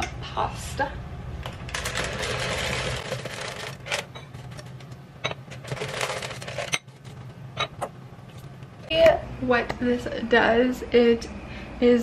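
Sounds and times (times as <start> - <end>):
dry pasta rattling into pan: 5.6 - 6.8.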